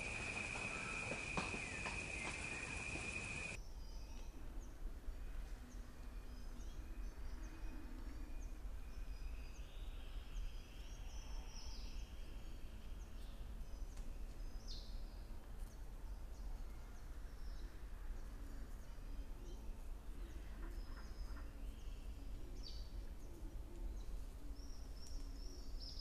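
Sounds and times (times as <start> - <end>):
high bird chirps: 0.0 - 3.6
short bright calls: 0.0 - 3.6.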